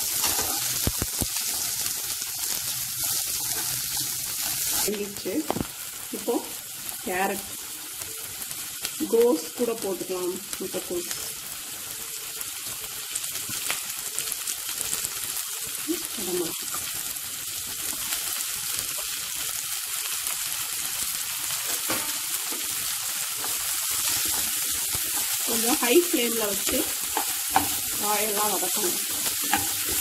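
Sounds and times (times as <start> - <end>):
spatula stirring in pan: 0.0 - 5.0, 23.3 - 30.0
vegetables sizzling in hot oil: 0.0 - 30.0.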